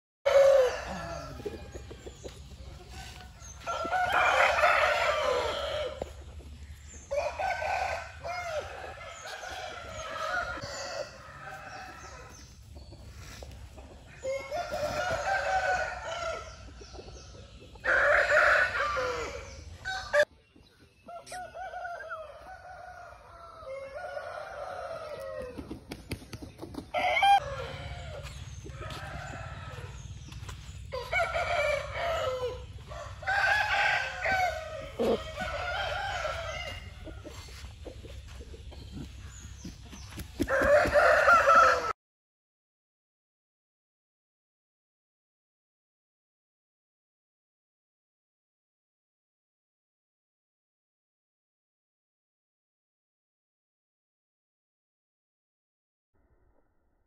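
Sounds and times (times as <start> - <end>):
roosters crowing: 0.2 - 13.4, 14.0 - 20.3, 21.1 - 25.9, 26.8 - 42.0.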